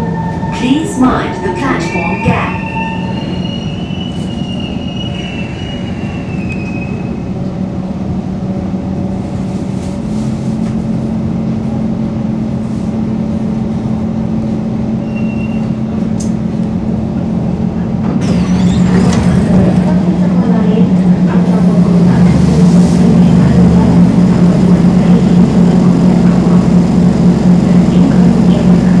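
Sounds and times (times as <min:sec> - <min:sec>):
train doors opening: 0:00.0 - 0:07.6, 0:17.8 - 0:23.8
rail rumble: 0:00.0 - 0:29.0
high wheel squeal: 0:01.3 - 0:07.2, 0:15.0 - 0:15.8
electric train motor hum: 0:15.9 - 0:29.0.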